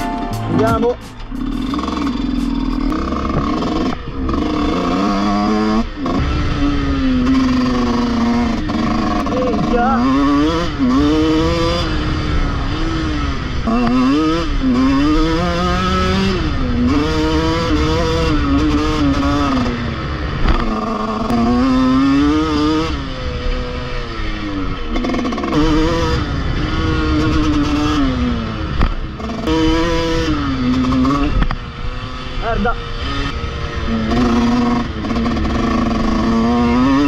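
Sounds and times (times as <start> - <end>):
motocross bike engine revving: 0.5 - 37.0.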